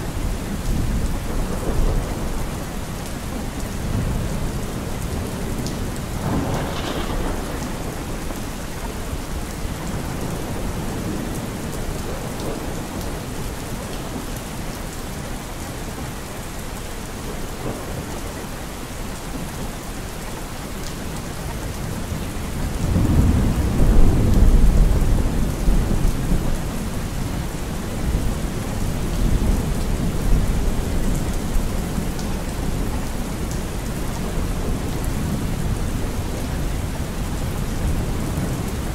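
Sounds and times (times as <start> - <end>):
steady rain: 0.0 - 38.9
thunder rolling: 6.2 - 8.6.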